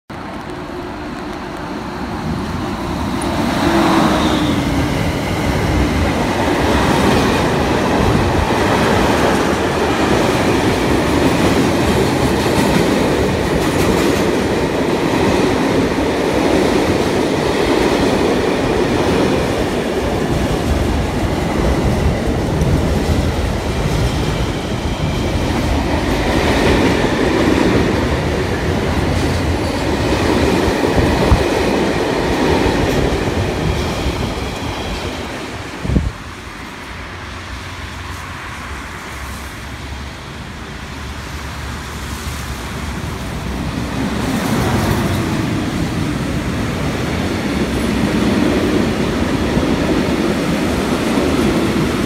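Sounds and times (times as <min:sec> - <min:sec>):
wagon wheels rumbling on rail: 0:00.1 - 0:38.4
electric locomotive hum: 0:00.1 - 0:52.0.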